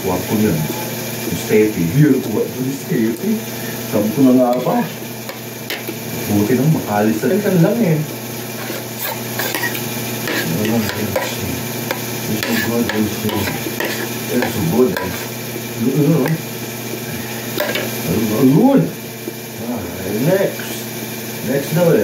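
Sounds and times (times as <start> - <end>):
spoon and fork scraping a plate: 4.5 - 6.0, 8.5 - 15.4, 17.5 - 18.0.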